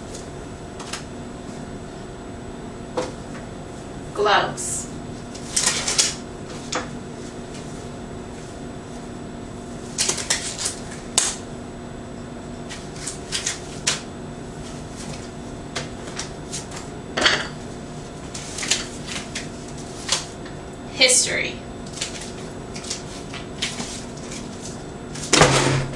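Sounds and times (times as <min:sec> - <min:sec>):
faint steady hum: 0:00.0 - 0:25.9
disposable gloves rustling: 0:21.8 - 0:25.4.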